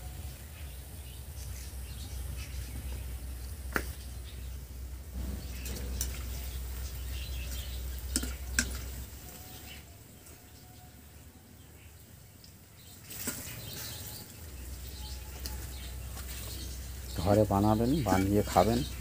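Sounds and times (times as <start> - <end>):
low hum: 0.0 - 9.4
fritters frying in hot oil: 0.0 - 19.0.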